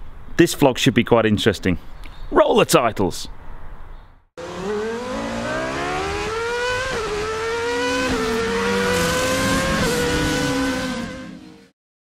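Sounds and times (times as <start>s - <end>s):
car engine accelerating: 4.4s - 11.7s.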